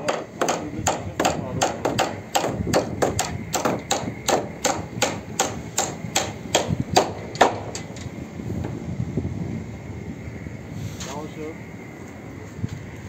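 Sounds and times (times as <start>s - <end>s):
hammer striking nails into wood: 0.0s - 8.0s.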